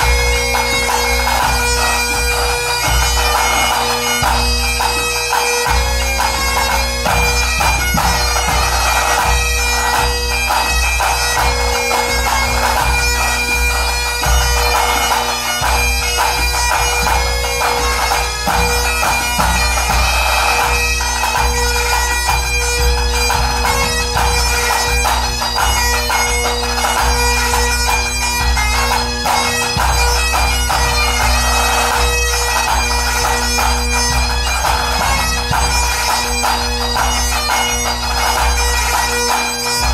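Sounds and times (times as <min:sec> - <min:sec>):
bagpipes playing melody: 0:00.0 - 0:39.9
bass drum: 0:22.3 - 0:25.8.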